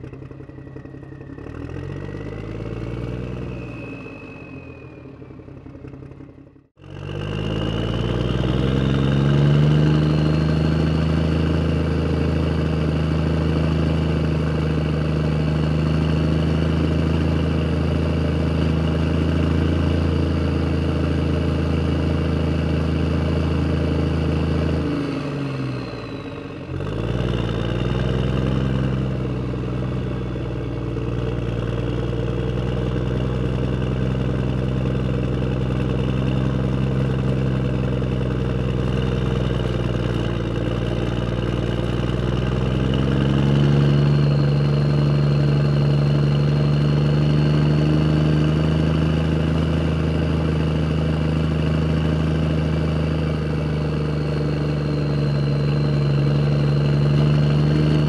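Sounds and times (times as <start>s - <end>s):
heavy vehicle engine running: 0.0s - 58.0s
faint high whine: 0.5s - 5.7s.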